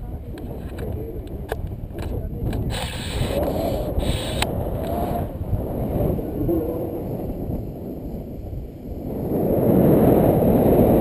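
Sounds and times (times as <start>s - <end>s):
wind buffeting microphone: 0.0s - 11.0s
sharp clicks: 0.3s - 5.0s.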